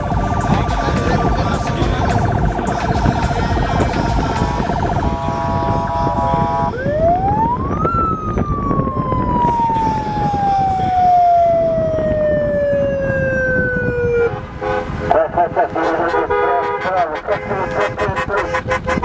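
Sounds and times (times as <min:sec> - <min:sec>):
steady chord of tones: 0:00.0 - 0:12.1
siren sweeping up and down: 0:00.0 - 0:15.6.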